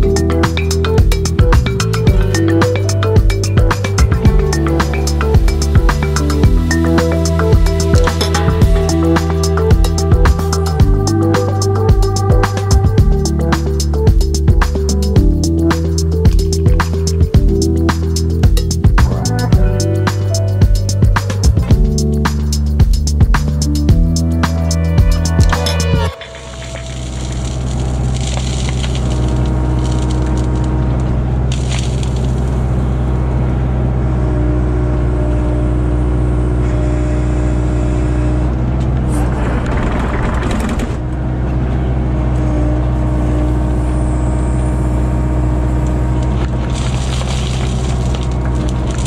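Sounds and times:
excavator diesel engine running: 0.0 - 31.5
soil and gravel crunching in bucket: 26.2 - 32.8, 46.2 - 49.0.

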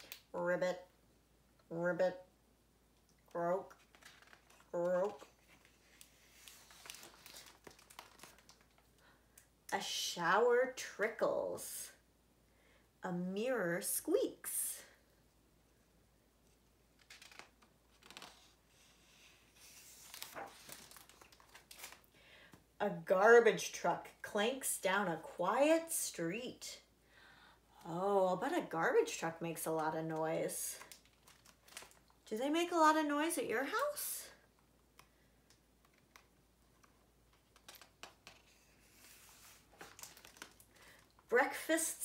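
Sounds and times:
book pages rustling: 3.7 - 8.9, 16.5 - 22.1, 30.8 - 32.0, 35.8 - 41.1
faint clicks and taps: 34.6 - 38.6.

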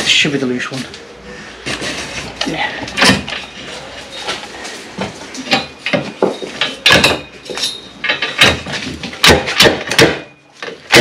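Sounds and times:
metallic clanks and knocks: 1.7 - 11.0
metal prop rattling: 5.4 - 11.0.

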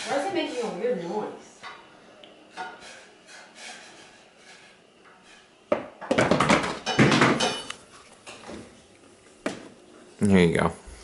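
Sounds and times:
plastic cup clattering on wooden floor: 5.7 - 7.6.

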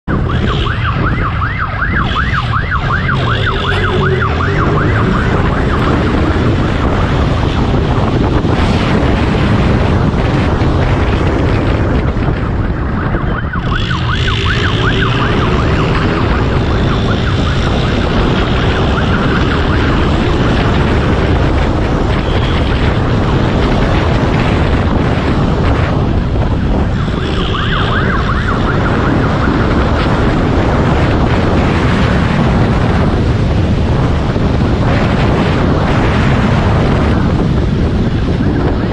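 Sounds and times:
wind and road noise: 0.0 - 38.9
police siren yelping: 0.1 - 7.0, 12.2 - 21.0, 26.8 - 30.5.

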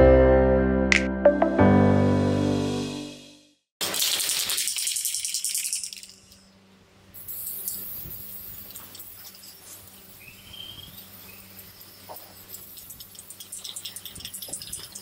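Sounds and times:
spray paint hissing: 3.8 - 6.4, 7.2 - 15.0
spray can rattling: 3.8 - 6.5, 7.2 - 10.0.

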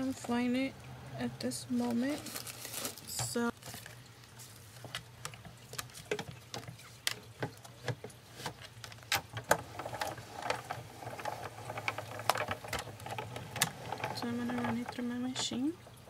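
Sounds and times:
plastic plates clicking and tapping: 4.8 - 15.8.

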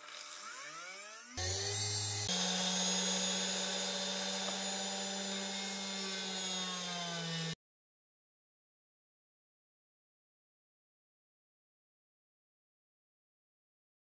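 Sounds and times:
motor humming: 0.0 - 7.6.

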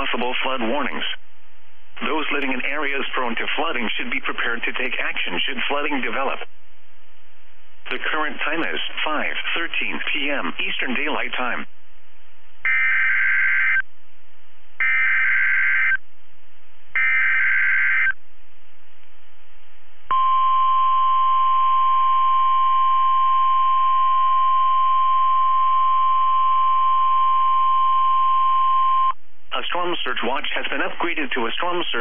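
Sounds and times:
steady warning alarm tone: 12.6 - 13.8, 14.8 - 16.0, 17.0 - 18.2, 20.1 - 29.2
warbling digital header tones: 12.7 - 13.8, 14.8 - 16.0, 17.0 - 18.2.

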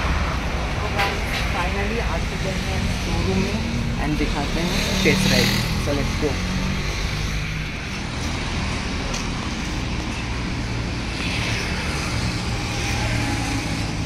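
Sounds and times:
road traffic with engines humming: 0.0 - 14.0.

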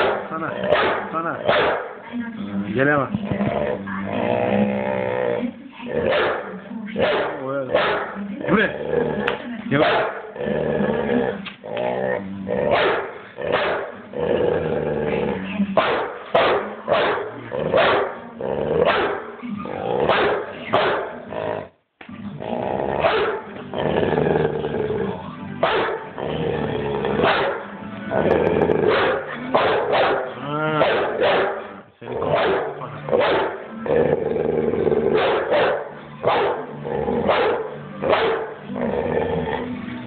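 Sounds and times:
dog barking: 0.0 - 2.0, 6.1 - 8.2, 9.8 - 10.3, 12.7 - 13.9, 15.8 - 18.2, 18.9 - 19.3, 20.1 - 21.2, 23.0 - 23.5, 25.6 - 26.0, 27.2 - 27.6, 28.9 - 33.6, 35.2 - 36.6, 37.3 - 38.6
dog growling: 0.0 - 15.8, 16.5 - 40.0.

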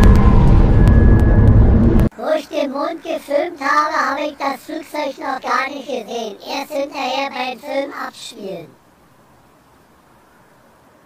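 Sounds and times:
high-pitched voice singing: 2.2 - 8.8.

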